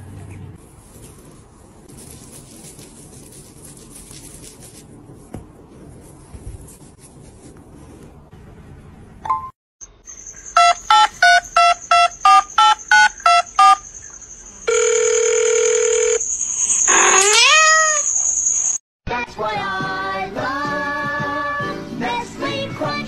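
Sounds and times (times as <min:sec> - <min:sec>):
thin high whine: 0:09.9 - 0:18.8
telephone ringing tone: 0:10.6 - 0:13.9, 0:14.7 - 0:16.3.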